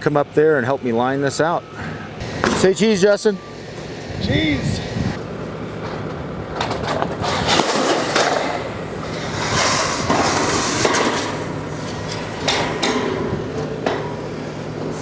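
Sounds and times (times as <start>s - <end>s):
metal roof panel scraping: 6.6s - 13.3s.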